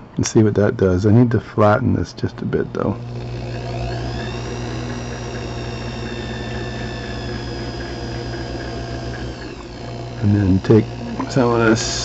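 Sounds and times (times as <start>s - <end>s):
lathe motor whining: 1.7s - 12.0s.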